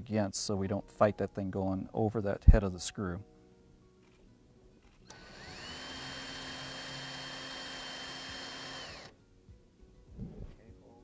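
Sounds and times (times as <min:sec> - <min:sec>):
cordless drill whining: 0:05.1 - 0:09.1.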